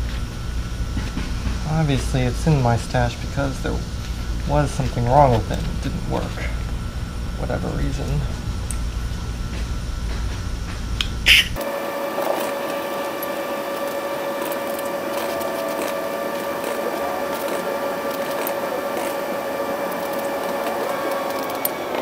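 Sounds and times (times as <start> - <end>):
machine hum: 0.0 - 22.0.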